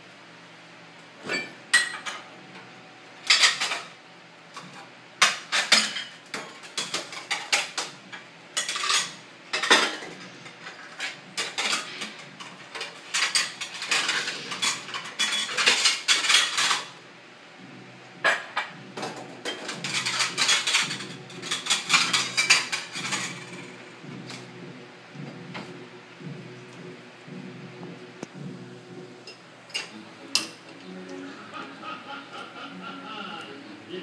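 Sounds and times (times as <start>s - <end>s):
dishes clattering on wire rack: 1.2s - 2.3s, 3.2s - 4.0s, 4.6s - 17.0s, 18.2s - 24.4s, 29.3s - 30.6s.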